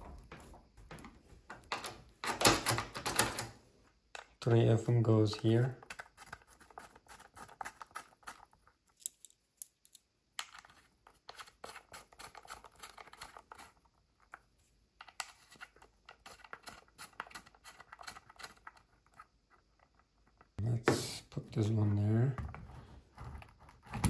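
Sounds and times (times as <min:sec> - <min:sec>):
small metal clicks and scrapes: 0:15.0 - 0:20.6.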